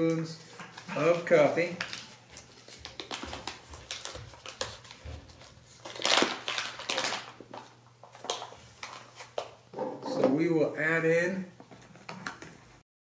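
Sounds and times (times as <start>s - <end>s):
coffee bag crinkling: 0.7s - 9.3s.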